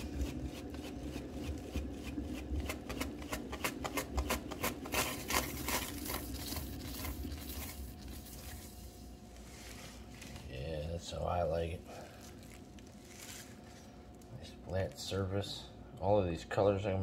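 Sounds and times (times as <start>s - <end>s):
turntable whirring with low rumble: 0.0s - 13.0s.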